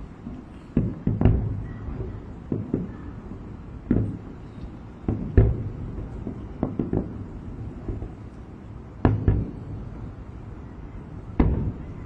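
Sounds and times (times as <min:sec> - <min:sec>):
distant fireworks booming: 0:00.0 - 0:12.0.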